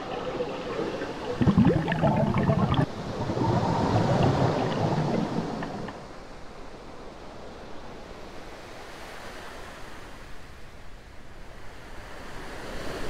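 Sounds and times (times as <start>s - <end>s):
rush of water: 0.0s - 6.1s.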